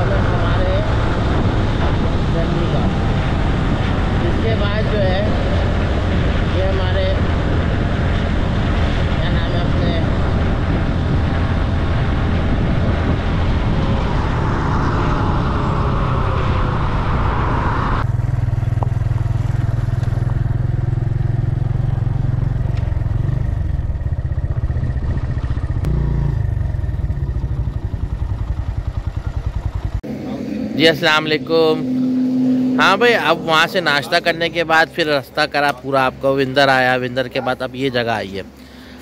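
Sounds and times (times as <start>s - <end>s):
wind noise on microphone: 0.0s - 20.6s, 21.7s - 29.9s
motorcycle engine running: 18.0s - 33.1s.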